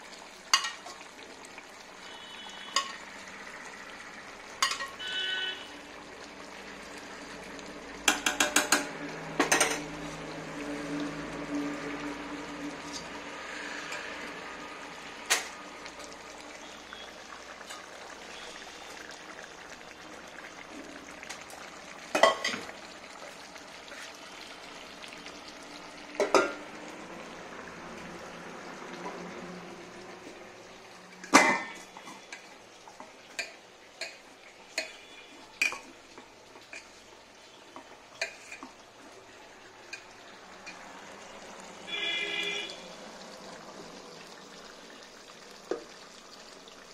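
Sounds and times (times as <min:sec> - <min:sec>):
metal utensils clanking on pots: 0:00.5 - 0:01.0, 0:02.7 - 0:03.0, 0:04.6 - 0:05.0, 0:08.0 - 0:09.9, 0:22.1 - 0:22.7, 0:26.2 - 0:26.6, 0:31.2 - 0:32.5, 0:33.3 - 0:35.9, 0:37.8 - 0:38.8.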